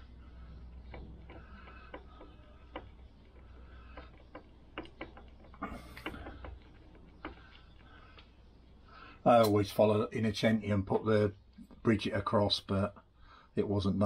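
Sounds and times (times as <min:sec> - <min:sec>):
steady low hum: 0:00.0 - 0:14.0
metal parts clicking and tapping: 0:00.7 - 0:08.3.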